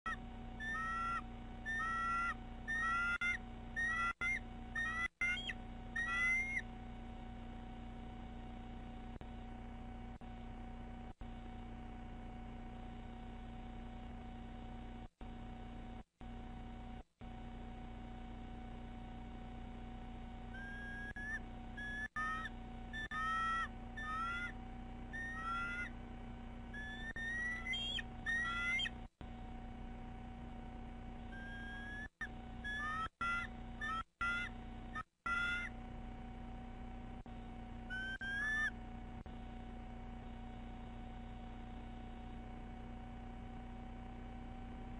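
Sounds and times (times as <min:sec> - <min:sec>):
eagle whistled calls: 0:00.1 - 0:06.6, 0:20.5 - 0:25.9, 0:26.7 - 0:29.0, 0:31.3 - 0:35.7, 0:37.9 - 0:38.8.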